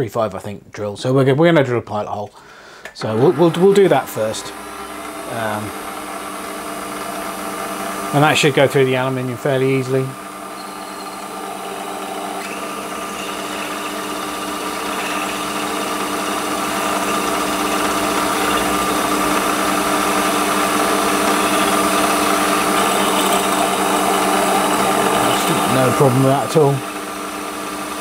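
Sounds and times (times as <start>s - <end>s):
lathe drilling into metal: 3.0s - 28.0s.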